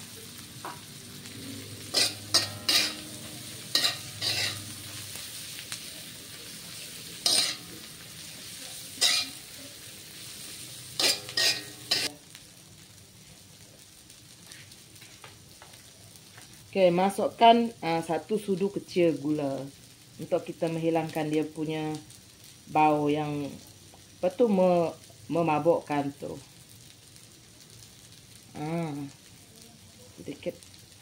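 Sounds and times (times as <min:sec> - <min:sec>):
leaves sizzling in oil: 0:00.0 - 0:31.0
metal spatula scraping wok: 0:01.2 - 0:12.1.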